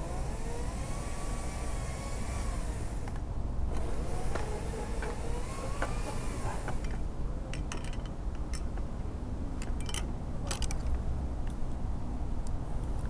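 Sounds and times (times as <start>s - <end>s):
metallic clicks of carabiner: 9.6s - 11.0s.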